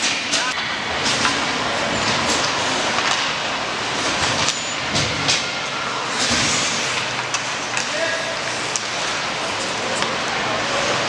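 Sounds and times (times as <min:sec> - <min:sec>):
skates scraping ice: 0:04.0 - 0:11.0
hockey sticks clacking on puck: 0:06.2 - 0:11.0.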